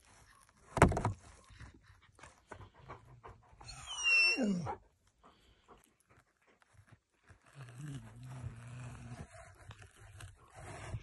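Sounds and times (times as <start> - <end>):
cat crunching on bone: 5.3 - 10.9.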